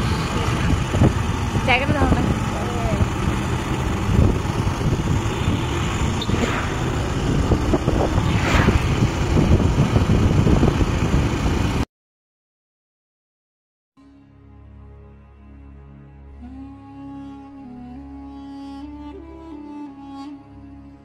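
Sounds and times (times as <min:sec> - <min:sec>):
road and wind rumble in vehicle: 0:00.0 - 0:11.8.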